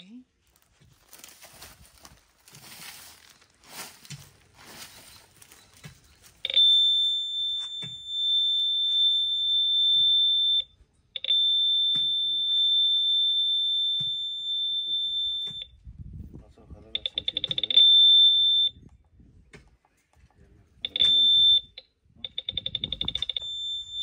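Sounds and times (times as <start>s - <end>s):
metal detector high-pitched tone: 4.8s - 15.7s, 16.9s - 18.8s, 20.8s - 24.0s.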